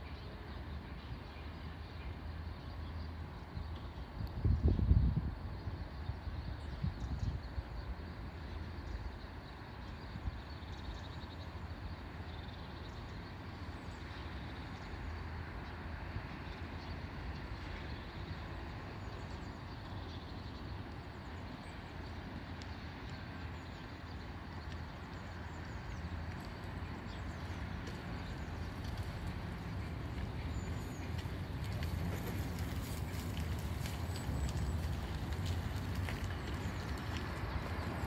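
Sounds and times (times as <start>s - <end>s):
low outdoor rumble: 0.0s - 38.0s
faint high ticks: 22.5s - 38.0s.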